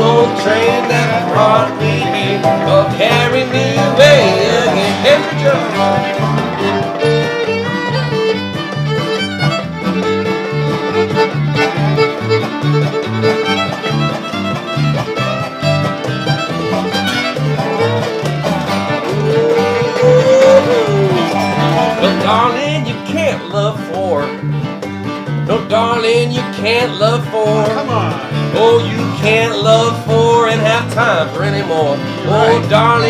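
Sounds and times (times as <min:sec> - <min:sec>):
fiddle melody: 0:00.0 - 0:33.0
resonator guitar: 0:00.0 - 0:33.0
strummed acoustic guitar: 0:00.0 - 0:33.0
two-beat bass line: 0:00.0 - 0:33.0.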